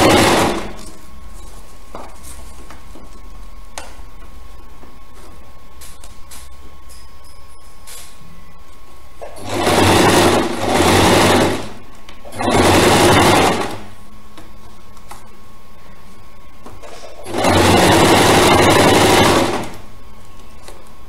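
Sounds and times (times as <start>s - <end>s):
sewing machine stitching: 0.0s - 0.8s, 9.3s - 13.9s, 17.2s - 19.8s.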